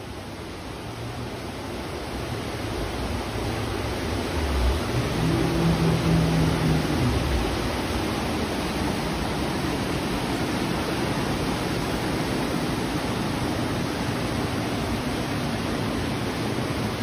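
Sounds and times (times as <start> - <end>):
floodwater rushing: 0.0 - 17.0
heavy rain pouring: 0.0 - 17.0.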